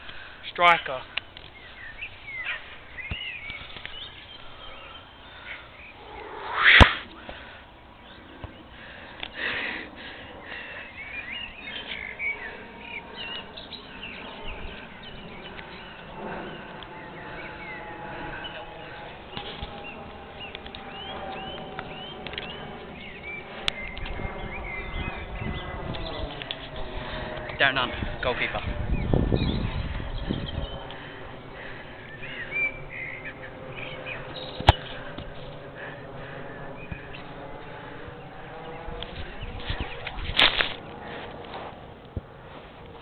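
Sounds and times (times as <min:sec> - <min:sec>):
small birds chirping: 0:00.0 - 0:41.4
faint steady hum: 0:00.0 - 0:43.0.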